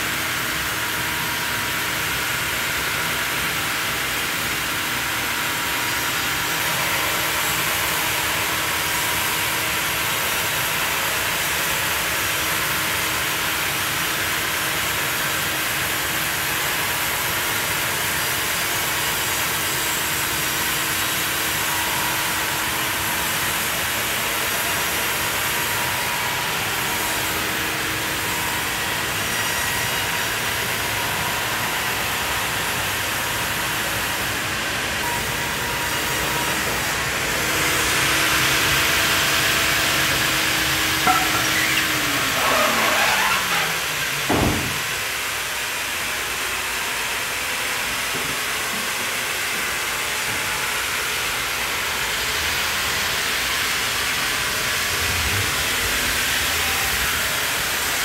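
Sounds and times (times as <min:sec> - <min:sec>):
band saw cutting log: 0:36.0 - 0:46.0.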